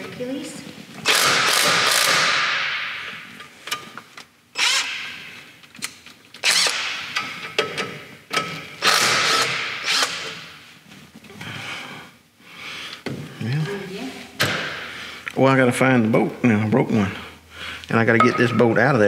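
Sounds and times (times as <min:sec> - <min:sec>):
impact driver bursts: 0:01.0 - 0:02.8, 0:04.6 - 0:05.2, 0:06.4 - 0:07.2, 0:08.8 - 0:10.4.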